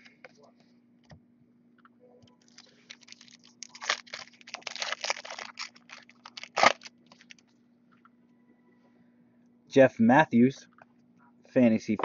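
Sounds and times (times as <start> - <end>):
foil wrapper crinkling and tearing: 2.4 - 7.4.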